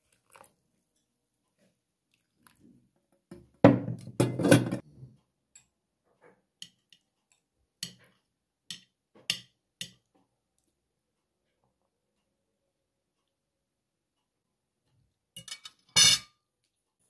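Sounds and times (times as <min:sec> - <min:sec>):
crockery clattering: 0:03.8 - 0:04.8.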